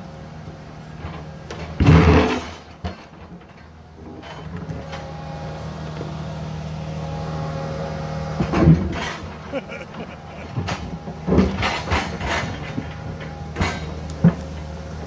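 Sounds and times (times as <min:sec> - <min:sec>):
excavator engine: 0:00.0 - 0:15.0
excavator bucket scraping rock: 0:01.0 - 0:05.0, 0:08.4 - 0:15.0.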